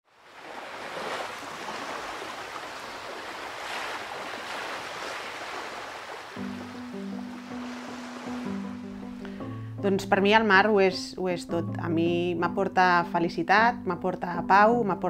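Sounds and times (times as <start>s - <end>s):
sea waves washing: 0.0s - 9.7s
low music chord: 6.4s - 10.4s.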